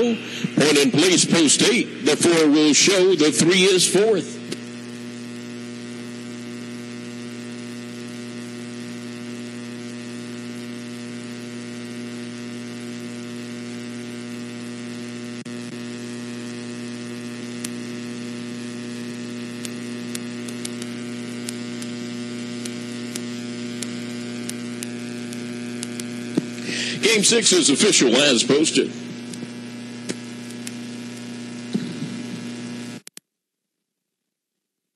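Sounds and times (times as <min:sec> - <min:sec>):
static hiss: 0:00.0 - 0:33.1
electrical mains hum: 0:00.0 - 0:33.2
faint clicks: 0:19.6 - 0:21.9, 0:22.6 - 0:26.6.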